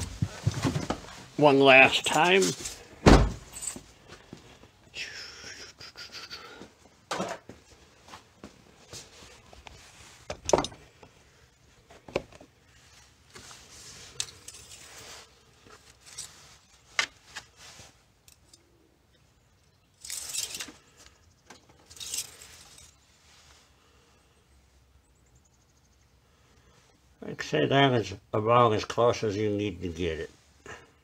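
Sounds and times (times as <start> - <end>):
short rustling: 12.6 - 18.0.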